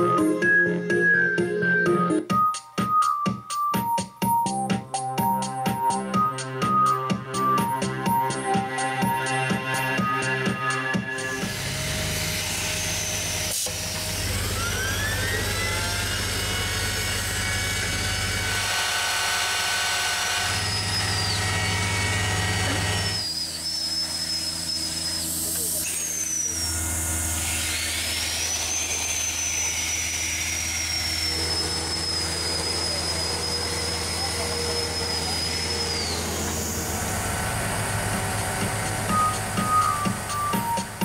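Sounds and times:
high motor whines: 6.1 - 41.0
machinery low hum: 20.5 - 25.7, 31.3 - 41.0.

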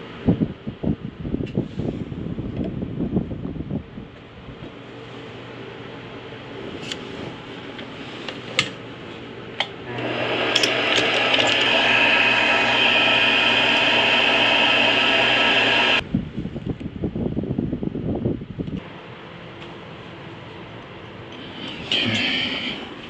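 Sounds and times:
metal lathe drilling brass rod: 9.9 - 16.0.

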